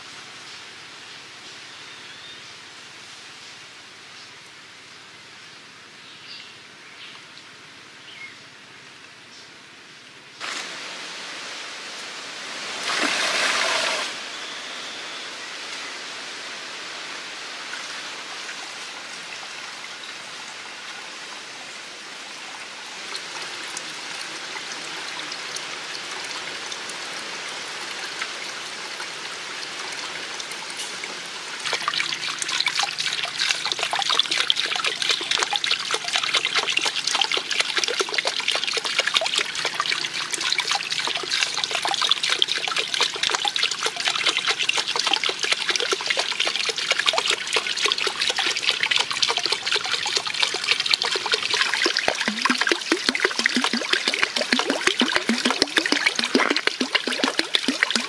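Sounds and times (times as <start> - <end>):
water trickling and splashing: 10.4 - 14.2, 17.4 - 58.0.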